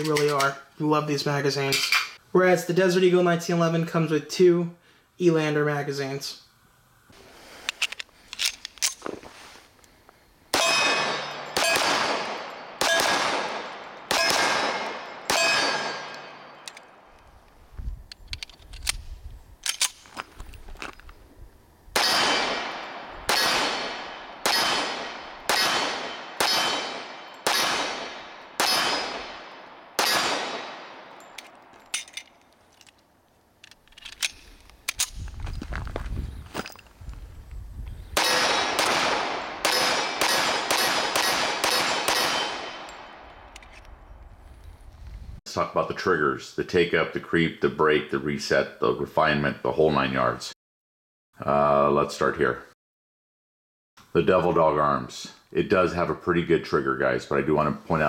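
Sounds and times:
gun handling clicks and clatter: 0.0s - 0.6s, 1.7s - 2.2s, 7.6s - 10.2s, 14.8s - 21.2s, 30.6s - 37.0s, 38.2s - 45.2s
pistol shots: 10.5s - 17.0s, 22.0s - 31.7s, 38.2s - 43.5s.

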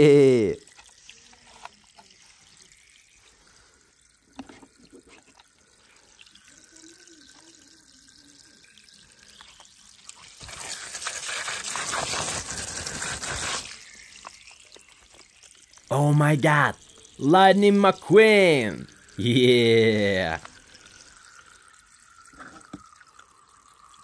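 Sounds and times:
water jet spraying on plastic: 10.2s - 19.0s.

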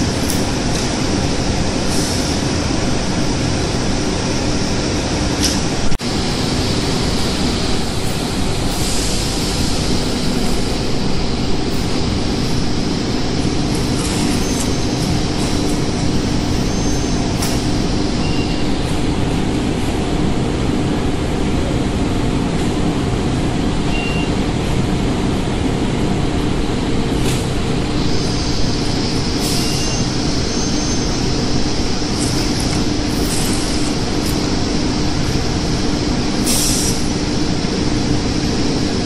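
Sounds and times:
industrial machine hum and rumble: 0.0s - 39.0s
high hiss: 27.5s - 38.8s.

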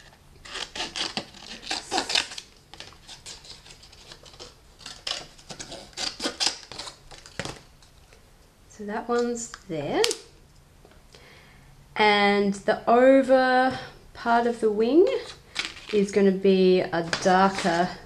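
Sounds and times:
scissors snipping paper: 0.5s - 7.4s.

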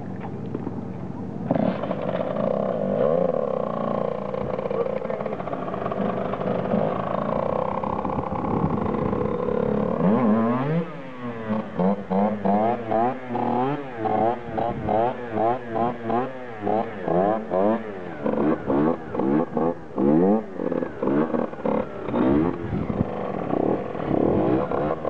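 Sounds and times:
dirt bike engine revving: 1.4s - 25.0s.

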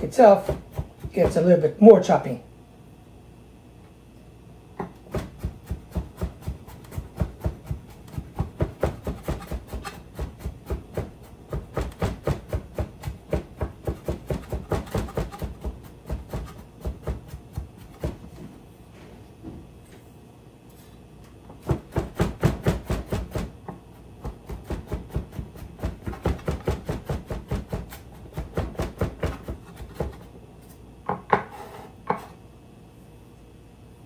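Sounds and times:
knife chopping on wooden board: 0.3s - 1.6s, 4.8s - 18.2s, 21.6s - 30.3s, 31.1s - 32.4s.

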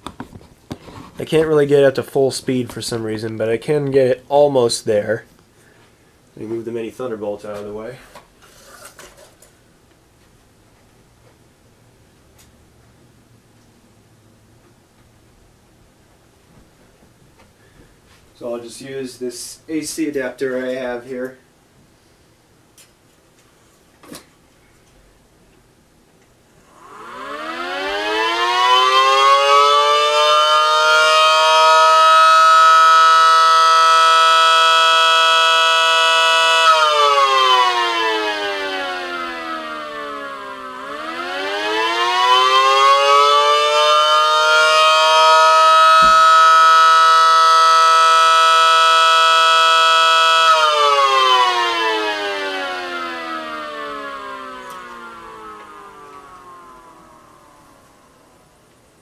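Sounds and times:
siren winding up and down: 26.6s - 58.5s
small electric motor spinning: 26.7s - 28.0s.

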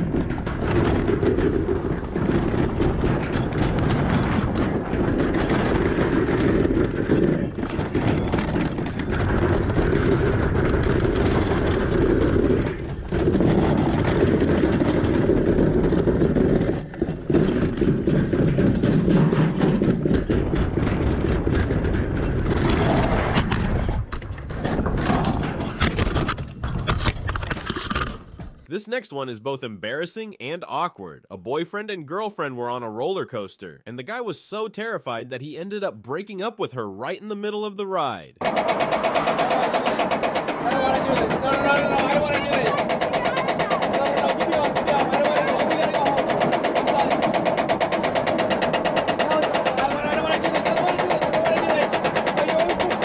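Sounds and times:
sled rumbling down a steel chute: 0.0s - 26.8s, 38.4s - 53.0s
scattered knocks: 0.0s - 28.7s, 38.4s - 53.0s
rattling: 38.4s - 53.0s.

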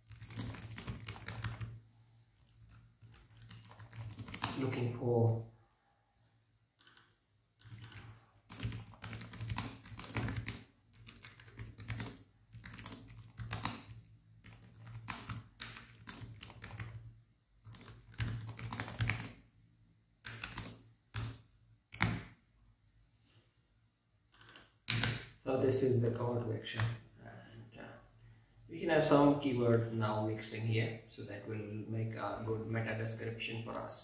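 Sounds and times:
typing on keyboard: 0.0s - 1.8s, 2.4s - 4.8s, 6.8s - 19.4s, 20.2s - 22.2s, 24.3s - 25.3s.

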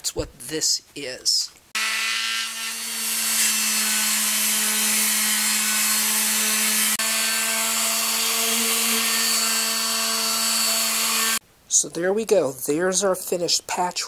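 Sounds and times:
electric sander running: 1.8s - 11.4s.

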